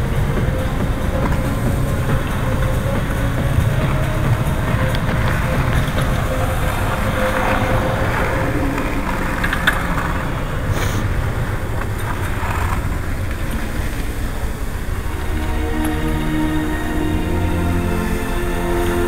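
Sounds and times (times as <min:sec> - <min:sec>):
wind buffeting microphone: 0:00.0 - 0:15.3
faint clicks: 0:00.5 - 0:16.0.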